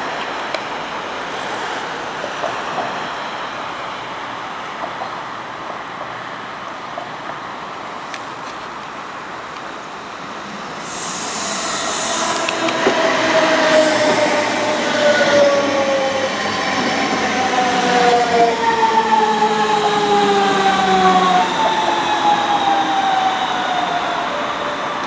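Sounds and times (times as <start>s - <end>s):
rail and running noise: 0.0s - 25.0s
short hissing: 10.8s - 12.8s, 13.6s - 14.5s
electric train motors whining: 10.8s - 16.3s.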